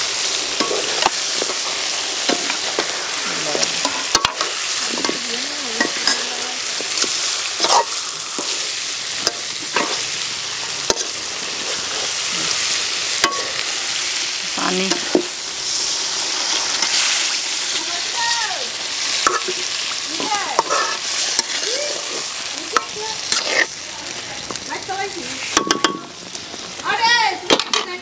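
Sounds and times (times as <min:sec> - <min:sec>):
fish sizzling in a pan: 0:00.0 - 0:28.0
metal spatula scraping a pan: 0:00.5 - 0:10.2, 0:10.8 - 0:13.6, 0:19.2 - 0:23.8.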